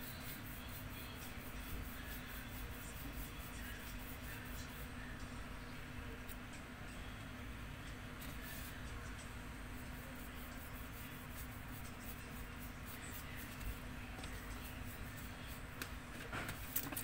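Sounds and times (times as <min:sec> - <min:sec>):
paintbrush strokes on paper: 0:00.0 - 0:05.1, 0:08.2 - 0:09.2, 0:09.8 - 0:15.8
steady low hum: 0:00.0 - 0:17.0.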